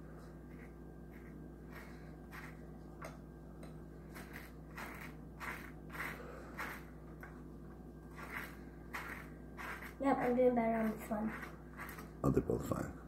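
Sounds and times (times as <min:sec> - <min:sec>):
knife scraping butter on bread: 0:00.4 - 0:02.7, 0:04.0 - 0:07.0, 0:08.1 - 0:12.2.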